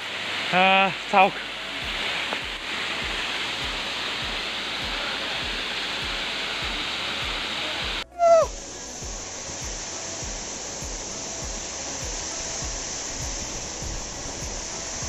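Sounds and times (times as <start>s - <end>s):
waterfall pouring: 0.0s - 15.0s
short falling tone: 8.0s - 9.2s.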